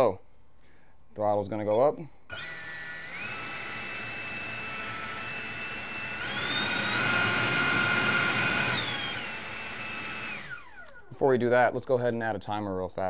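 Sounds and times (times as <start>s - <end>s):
electric ducted fan whining: 2.3s - 11.8s.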